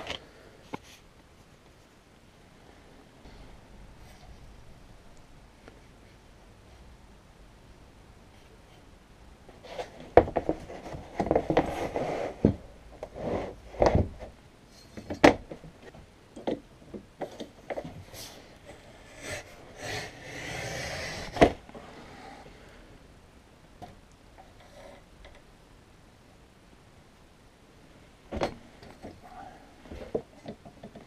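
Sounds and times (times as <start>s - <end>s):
cutting head scraping along board: 19.1s - 21.5s.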